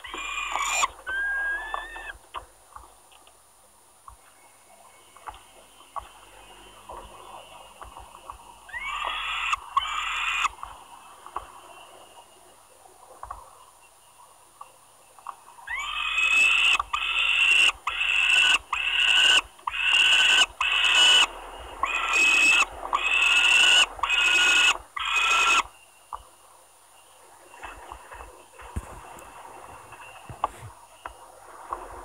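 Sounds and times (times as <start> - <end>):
young falcons calling harshly: 0.0 - 2.2, 8.7 - 10.5, 15.7 - 25.7.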